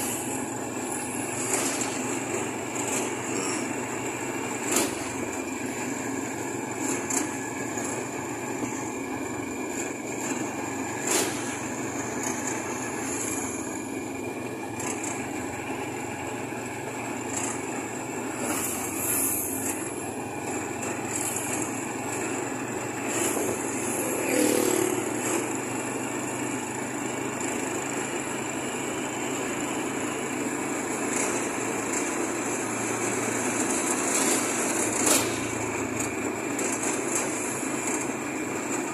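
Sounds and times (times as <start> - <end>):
motorcycle engines in traffic: 0.0 - 38.9
road and wind noise: 0.0 - 38.9
motorcycle passing close: 23.0 - 25.6.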